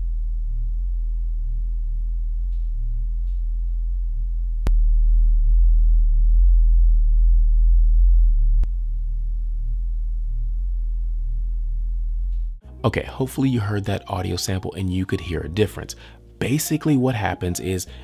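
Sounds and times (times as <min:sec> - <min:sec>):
deep test tone hum: 0:00.0 - 0:12.9.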